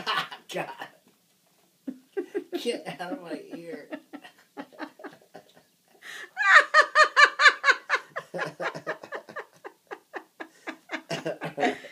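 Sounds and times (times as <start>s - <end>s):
person laughing hard: 6.3s - 11.9s.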